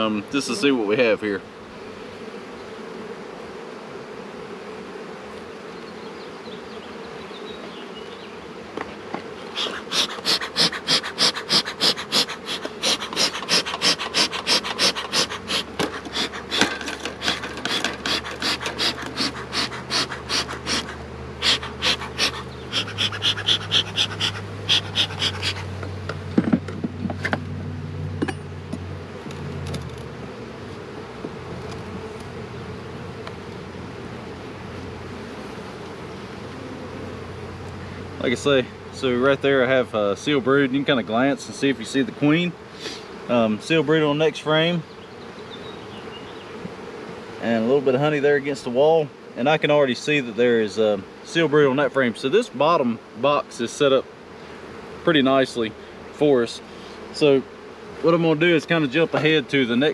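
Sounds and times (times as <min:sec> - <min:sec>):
honeybees buzzing: 0:00.0 - 0:59.9
bellows smoker puffing: 0:09.2 - 0:26.4, 0:42.6 - 0:43.3, 0:56.6 - 0:58.1.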